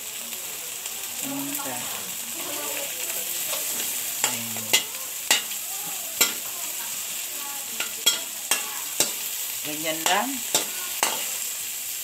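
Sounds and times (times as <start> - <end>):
shrimp sizzling in a pan: 0.0 - 12.0.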